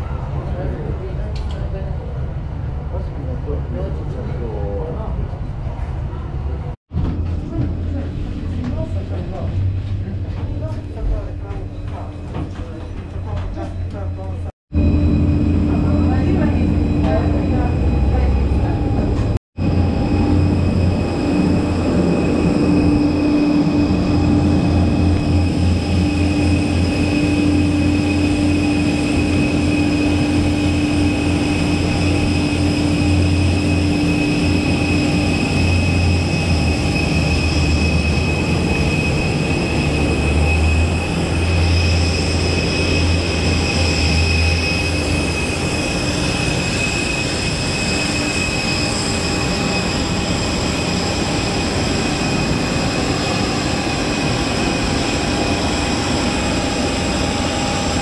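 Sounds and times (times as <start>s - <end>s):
low jet rumble: 0.0s - 58.0s
jet engines whining: 14.0s - 58.0s.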